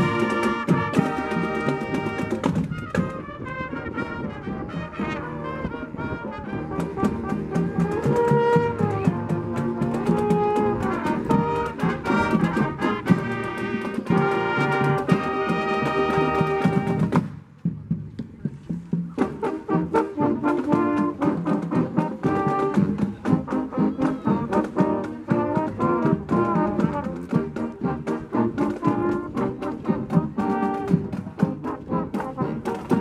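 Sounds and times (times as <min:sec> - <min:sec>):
drum beats: 0:00.0 - 0:05.1, 0:06.6 - 0:33.0
brass section playing: 0:00.0 - 0:17.2, 0:19.2 - 0:33.0.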